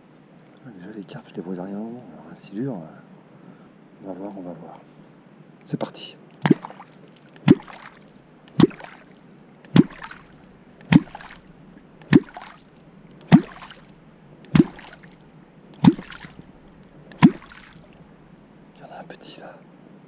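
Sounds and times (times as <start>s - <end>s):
catfish clonk splashing water: 6.4s - 15.2s, 15.8s - 18.0s.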